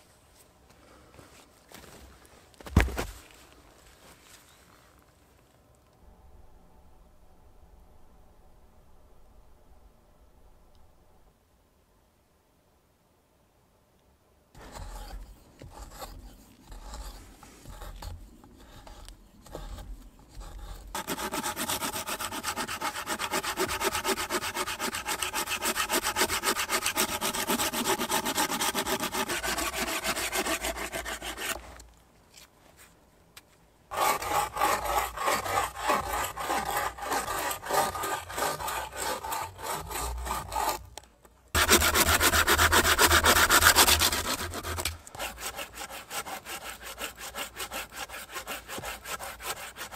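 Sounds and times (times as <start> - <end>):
handsaw cutting wood: 14.6 - 31.8, 33.9 - 40.9, 41.6 - 49.9
carving tool scraping wood: 14.6 - 32.5, 33.9 - 41.0, 41.6 - 49.9.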